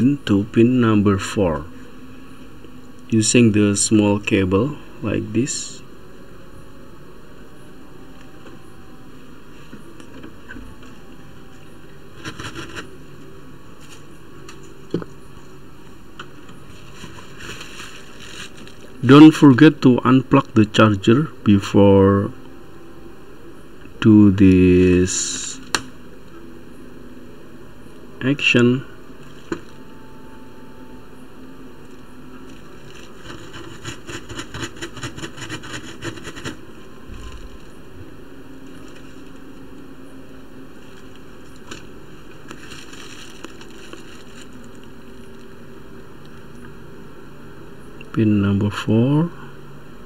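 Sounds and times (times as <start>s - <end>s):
steady background hiss: 0.0s - 50.0s
rustles: 16.5s - 19.0s, 37.0s - 46.7s
quick scratchy noises: 33.1s - 36.6s.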